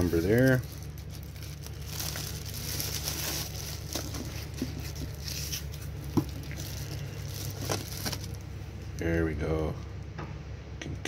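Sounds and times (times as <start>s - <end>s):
bubble wrap crinkling: 0.0s - 8.6s
steady low hum: 0.0s - 11.0s.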